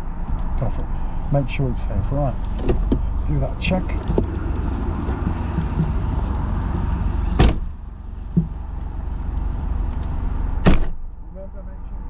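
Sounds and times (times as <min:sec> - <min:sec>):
car door slamming: 0:02.5 - 0:03.2, 0:07.2 - 0:08.8, 0:10.6 - 0:11.0.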